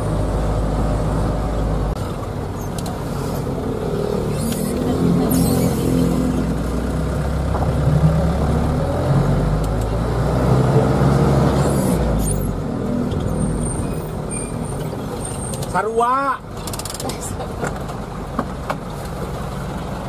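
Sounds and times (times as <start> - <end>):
diesel engine running: 0.0 - 15.8.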